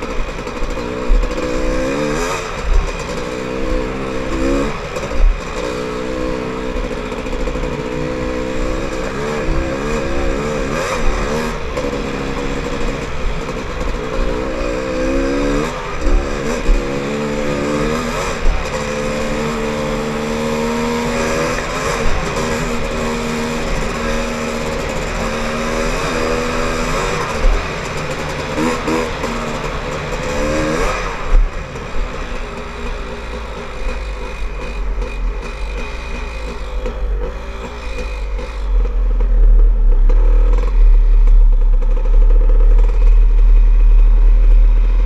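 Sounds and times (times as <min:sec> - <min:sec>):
dirt bike engine revving: 0:00.0 - 0:45.0
heavy low rumble: 0:38.2 - 0:45.0.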